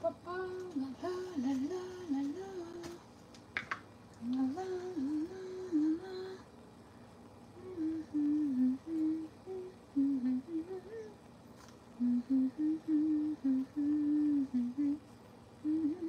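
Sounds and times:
woman humming: 0.0 - 3.0, 4.2 - 6.5, 7.6 - 11.2, 12.0 - 15.0, 15.6 - 16.0.

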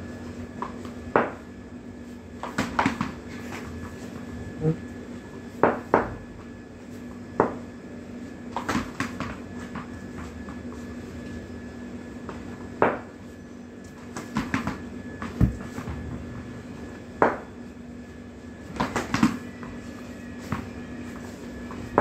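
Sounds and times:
faint steady hum: 0.0 - 22.0
ball bouncing on hard floor: 14.2 - 16.2.

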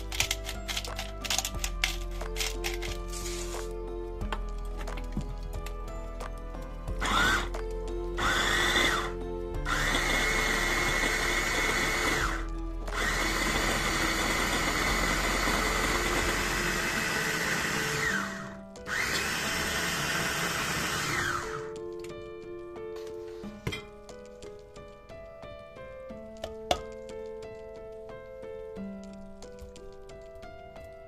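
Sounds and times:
food chopper motor whirring: 7.0 - 7.6, 8.2 - 21.8.

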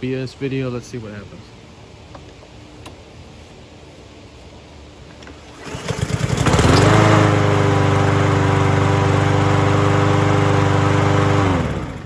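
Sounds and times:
lawn mower engine running: 2.2 - 12.0
recoil starter cranking: 5.2 - 7.2.

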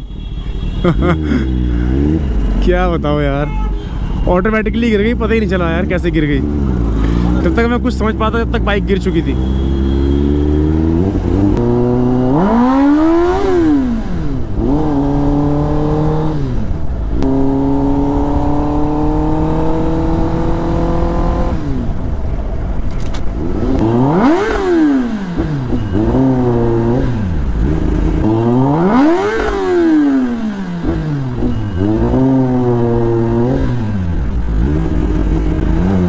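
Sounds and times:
motorcycle engine revving: 0.8 - 3.2, 4.9 - 22.2, 23.3 - 36.0.

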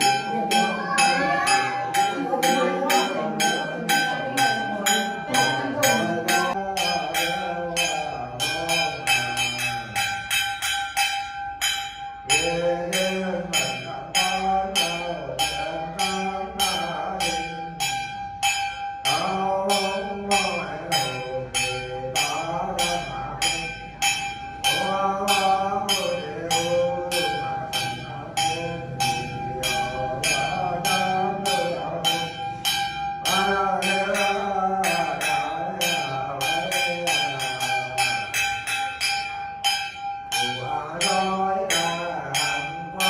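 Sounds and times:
man chanting: 0.0 - 10.6, 12.2 - 18.3, 19.0 - 39.2, 40.3 - 43.0
hand bells ringing: 0.0 - 43.0.

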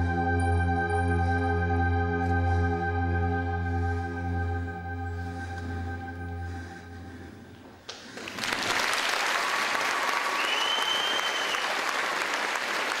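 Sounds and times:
held musical chord: 0.0 - 7.4
audience applause: 7.9 - 13.0
whistle: 10.2 - 11.8.

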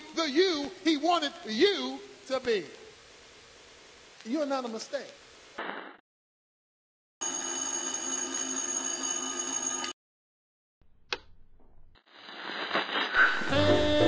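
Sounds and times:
alarm clock bell ringing: 7.2 - 10.0
click: 11.1 - 11.3
jazz music with saxophone: 13.4 - 14.0.

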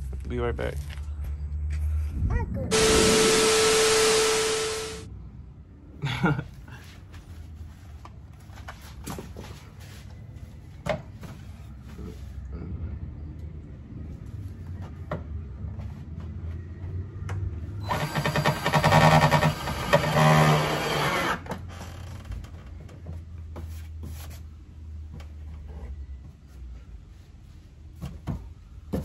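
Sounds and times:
cordless drill running: 2.7 - 5.1, 17.9 - 21.4.

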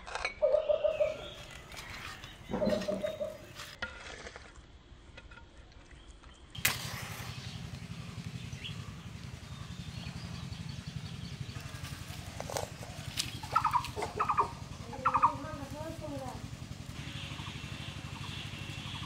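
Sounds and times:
match struck and flaring: 6.6 - 7.5
low background rumble: 6.6 - 19.0.

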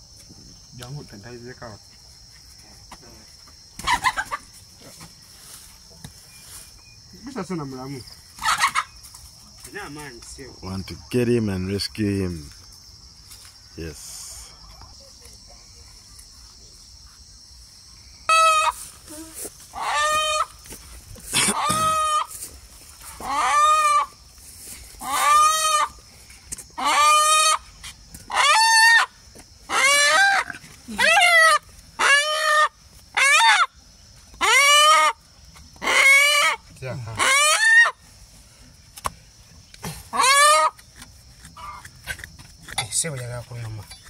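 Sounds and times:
chicken calling: 3.8 - 4.4, 8.4 - 9.0, 18.3 - 20.6, 21.4 - 22.4, 23.1 - 24.2, 25.0 - 26.0, 26.8 - 27.7, 28.3 - 33.7, 34.4 - 35.2, 35.8 - 38.1, 40.1 - 40.8.

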